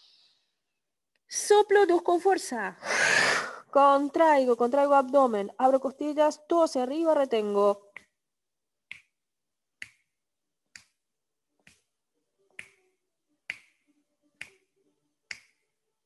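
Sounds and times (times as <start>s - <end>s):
finger snaps: 7.9s - 8.2s, 8.9s - 9.2s, 9.8s - 10.1s, 10.7s - 11.0s, 11.6s - 11.9s, 12.5s - 12.9s, 13.5s - 13.8s, 14.4s - 14.7s, 15.3s - 15.6s.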